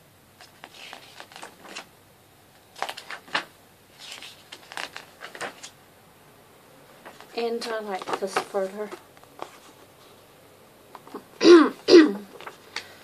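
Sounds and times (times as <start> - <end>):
paper pages rustling: 0.4 - 1.9, 2.6 - 5.8, 7.0 - 10.2, 10.9 - 11.4, 12.2 - 13.0.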